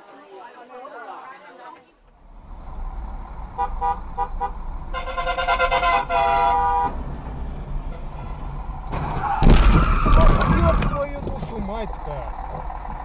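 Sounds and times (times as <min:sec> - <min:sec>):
low rumble of traffic: 0:01.8 - 0:13.0
car horns honking: 0:03.4 - 0:11.2.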